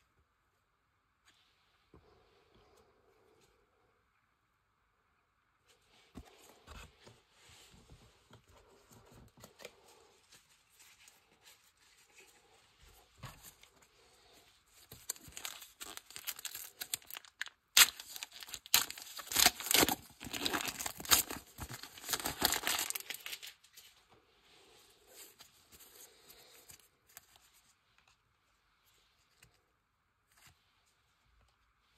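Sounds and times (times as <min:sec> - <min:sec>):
wrapper rustling: 0:14.8 - 0:23.8
foil wrapper tearing: 0:15.1 - 0:23.5.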